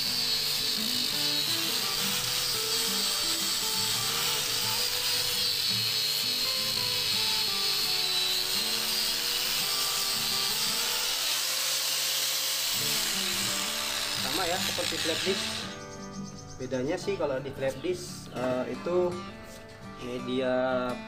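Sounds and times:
angle grinder sanding wood: 0:00.0 - 0:15.9
background music: 0:12.7 - 0:21.0.

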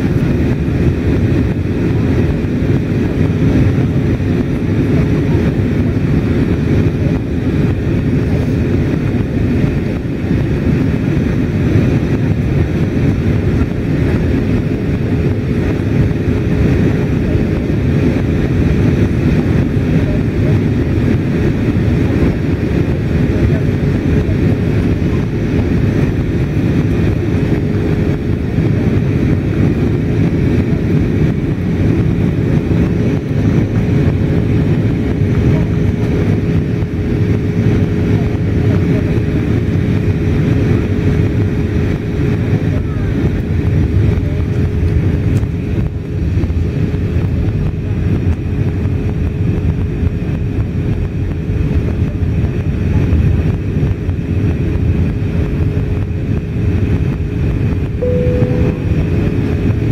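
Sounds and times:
aircraft cabin engine roar: 0:00.0 - 0:59.9
thin humming tone: 0:58.0 - 0:59.9.

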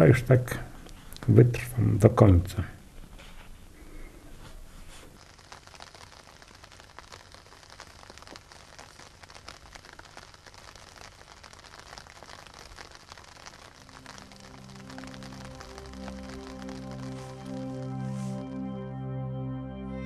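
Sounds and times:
crackling hiss with clicks: 0:00.0 - 0:18.8
low steady hum: 0:00.0 - 0:20.0
music: 0:14.0 - 0:20.0.

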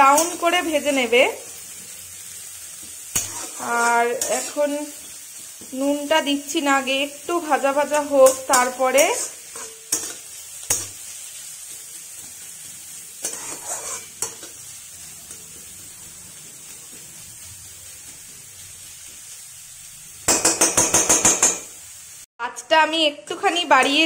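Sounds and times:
onions sizzling in a pan: 0:00.0 - 0:24.0
metal spatula knocking a pan: 0:20.3 - 0:21.7.

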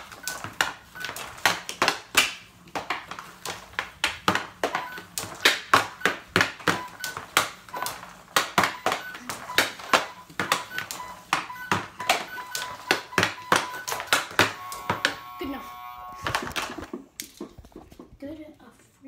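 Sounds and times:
hockey stick and puck clacking: 0:00.0 - 0:15.2.

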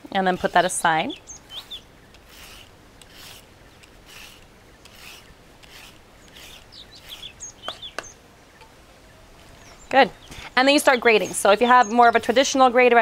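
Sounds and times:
birds chirping: 0:00.0 - 0:13.0
peeler scraping carrot: 0:00.1 - 0:08.1, 0:10.6 - 0:13.0.

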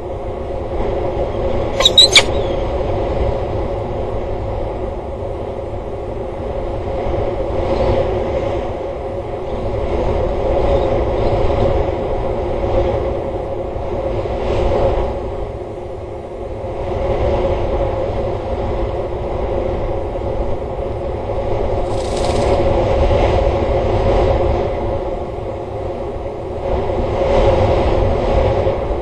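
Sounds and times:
wind rumble on microphone: 0:00.0 - 0:29.0
sharp clicks: 0:01.8 - 0:02.4.

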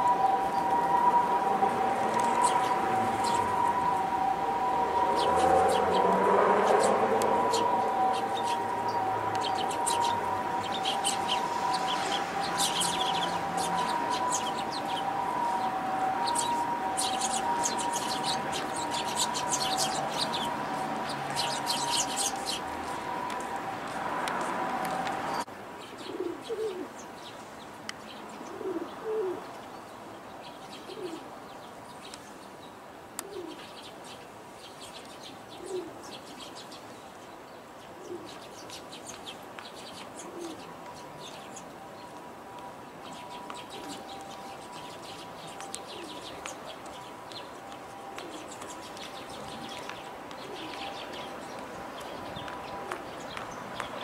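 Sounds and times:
pigeons cooing: 0:26.0 - 0:26.9, 0:28.5 - 0:29.4, 0:30.9 - 0:31.2, 0:35.6 - 0:36.0, 0:40.2 - 0:40.7.

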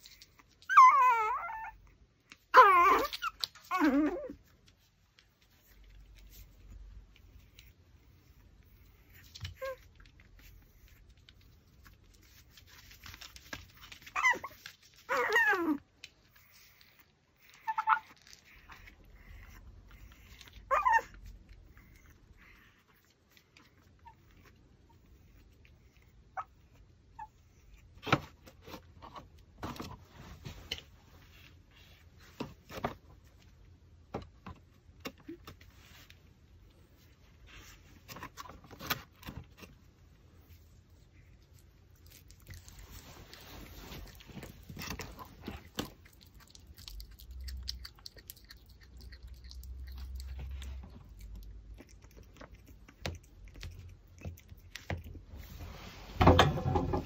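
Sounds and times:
dog gnawing bone: 0:43.9 - 0:55.2.

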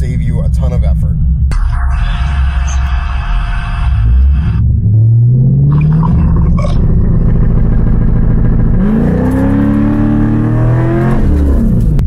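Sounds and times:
car engine revving: 0:02.4 - 0:12.0.

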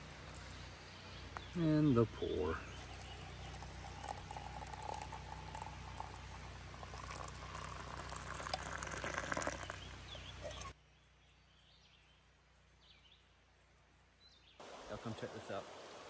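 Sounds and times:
water pouring into mug: 0:02.8 - 0:10.0.

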